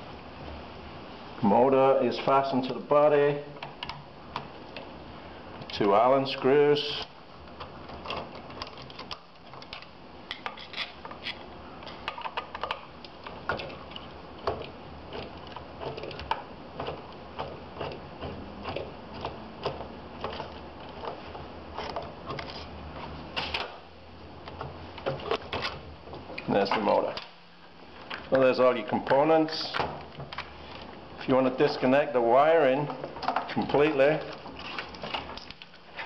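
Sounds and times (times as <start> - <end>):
metallic clicks and scrapes: 7.0 - 23.6.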